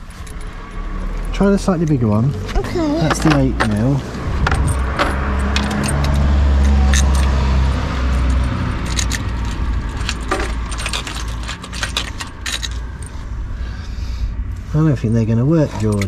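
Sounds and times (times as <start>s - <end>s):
low steady rumble: 0.0s - 16.0s
metal socket clinking on studs: 3.0s - 13.1s, 15.7s - 16.0s.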